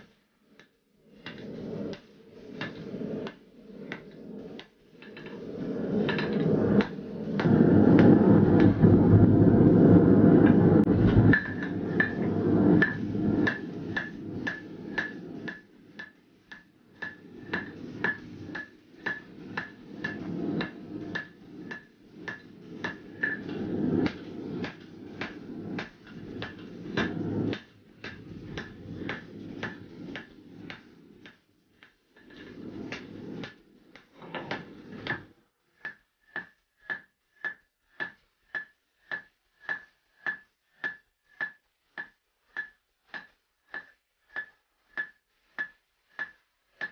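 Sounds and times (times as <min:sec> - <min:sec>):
hammer striking steel on anvil: 0:35.8 - 0:46.9.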